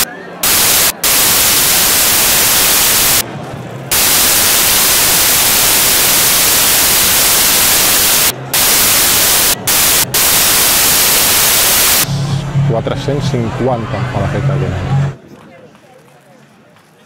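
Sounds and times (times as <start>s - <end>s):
static hiss: 0.0s - 3.2s, 3.9s - 12.1s.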